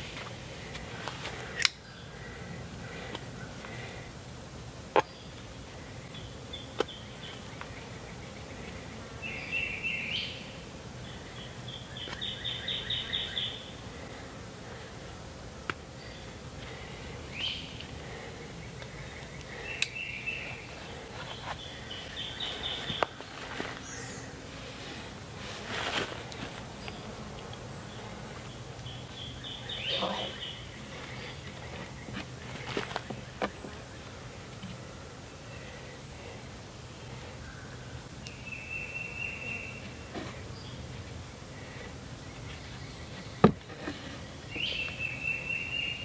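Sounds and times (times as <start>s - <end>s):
woodland background hiss: 0.0s - 46.0s
songbird trilling: 28.8s - 32.1s.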